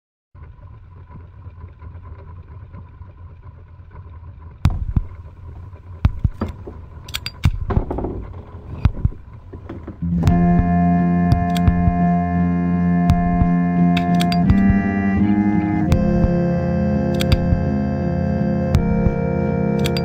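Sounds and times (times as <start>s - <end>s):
boat engine drone: 0.4s - 20.0s
sharp knocks and clicks: 4.7s - 5.2s, 6.0s - 12.1s, 13.1s - 14.9s, 17.1s - 17.7s, 19.8s - 20.0s
music with sustained tones: 10.0s - 20.0s.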